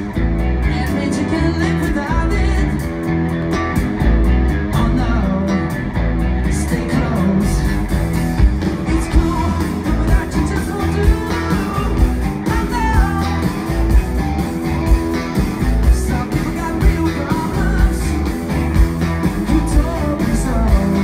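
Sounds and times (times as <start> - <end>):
live rock band playing: 0.0 - 21.0
man singing: 0.6 - 2.8, 4.7 - 5.8, 6.4 - 7.9, 8.8 - 13.8, 15.8 - 18.5, 19.3 - 21.0.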